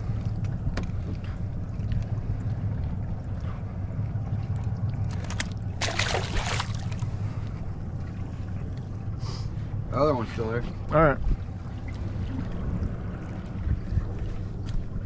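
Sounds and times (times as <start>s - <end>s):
steady low rumble: 0.0s - 15.0s
fish splashing into water: 5.0s - 7.1s.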